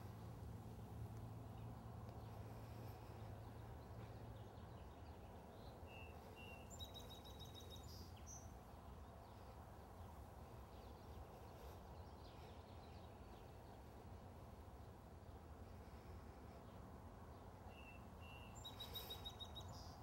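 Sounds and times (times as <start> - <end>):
low background rumble: 0.0 - 20.0
small bird chirping: 0.8 - 14.0, 17.4 - 20.0.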